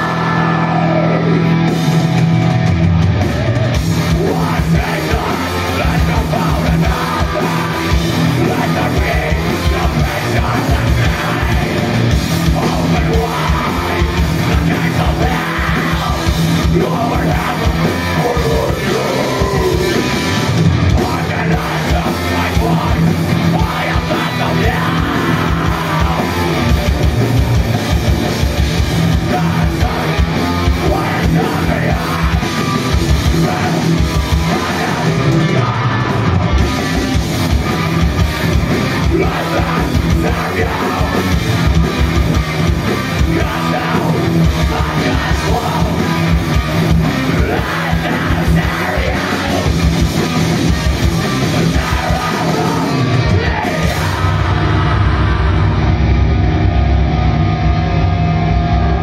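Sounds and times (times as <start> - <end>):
person yelling vocals: 0.0 - 1.4, 12.5 - 20.2, 21.0 - 26.7, 39.0 - 41.3, 47.3 - 49.7, 51.6 - 55.8
rapid drumming: 0.0 - 55.6
bass guitar: 0.0 - 59.0
distorted electric guitars: 0.0 - 59.0.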